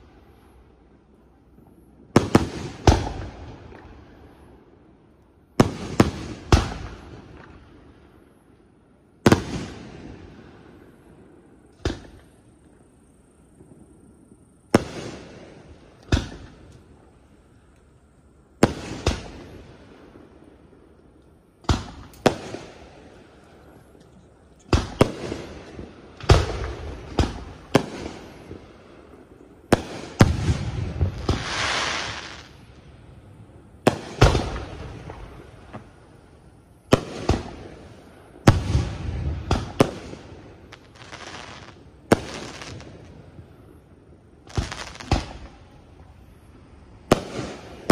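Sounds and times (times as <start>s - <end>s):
firework shells booming: 14.7s - 16.9s, 18.6s - 19.6s, 21.6s - 23.2s, 24.7s - 28.7s, 29.6s - 32.7s, 33.8s - 36.0s, 36.8s - 43.5s
firework hiss: 21.6s - 47.9s.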